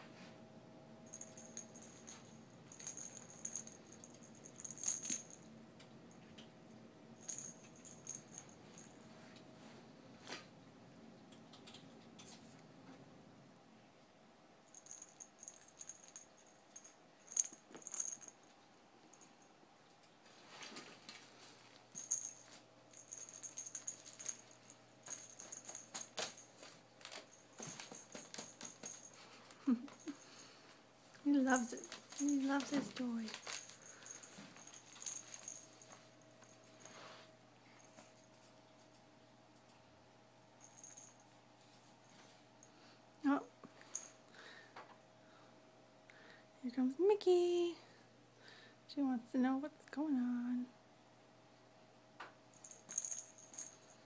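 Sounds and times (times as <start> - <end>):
toy ball bell jingling: 1.1 - 5.4, 7.2 - 8.9, 14.7 - 18.4, 21.9 - 26.5, 31.3 - 35.9, 40.6 - 41.2, 52.5 - 54.0.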